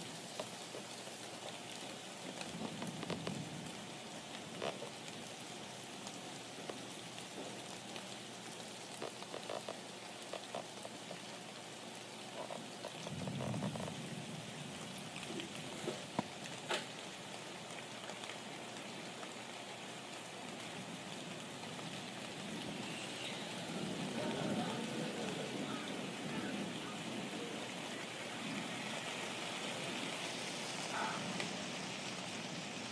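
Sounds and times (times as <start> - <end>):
steady rain falling: 0.0 - 32.9
clicks of single raindrops: 0.1 - 14.0, 15.1 - 20.8.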